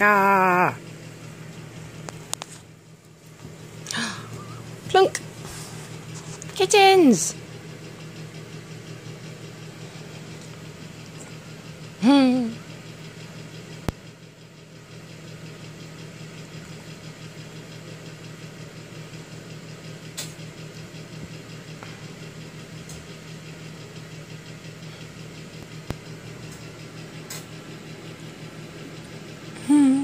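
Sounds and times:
steady low pulsing hum: 0.0 - 15.0.

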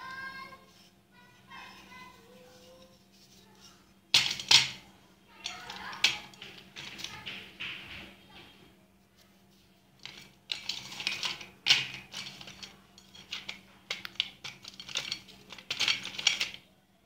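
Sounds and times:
pencils clattering on steel plate: 1.6 - 8.0, 10.0 - 16.7.

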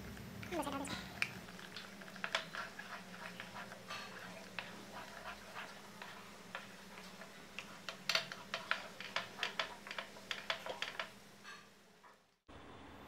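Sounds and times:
wooden spatula clicking in metal pan: 6.0 - 11.2.

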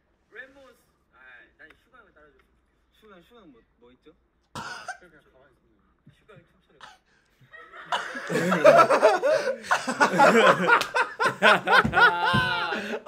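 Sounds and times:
men laughing: 7.5 - 13.0.

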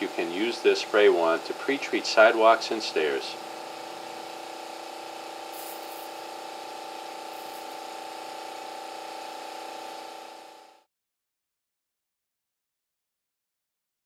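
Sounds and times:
electric pump humming: 0.0 - 10.9
spray wand hissing: 3.0 - 10.2.

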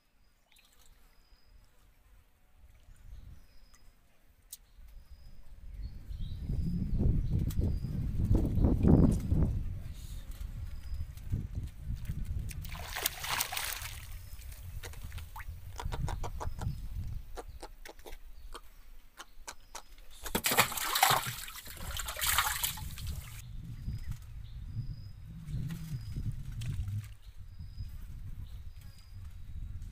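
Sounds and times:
wind on microphone: 2.6 - 3.6, 4.8 - 18.6, 21.0 - 29.9
water splashing: 12.5 - 15.5, 20.2 - 23.4.

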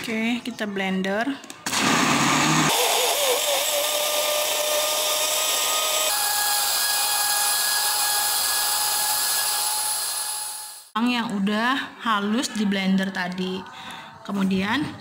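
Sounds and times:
blender motor whirring: 1.7 - 11.0.

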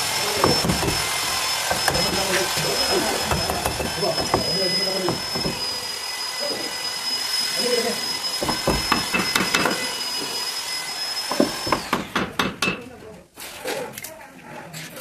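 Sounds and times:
hammer striking steel chisel: 3.2 - 5.6, 8.4 - 9.8.

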